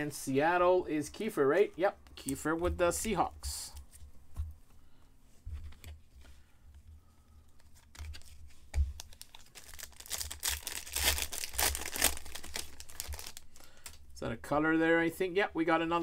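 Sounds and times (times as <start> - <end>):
wrapper tearing and crinkling: 7.8 - 14.0.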